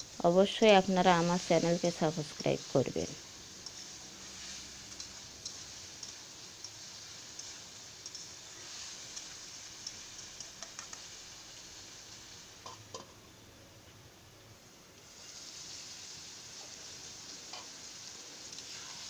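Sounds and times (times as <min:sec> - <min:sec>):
faint hiss from pan: 0:00.0 - 0:19.0
metal spatula scraping a pan: 0:03.6 - 0:11.1, 0:18.6 - 0:19.0.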